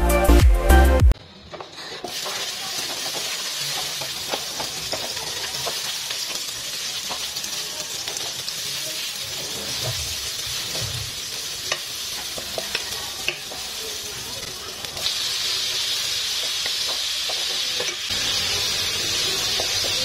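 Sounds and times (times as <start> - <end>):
onions sizzling in hot oil: 1.4 - 20.0
wooden spatula scraping and tapping: 1.5 - 6.4.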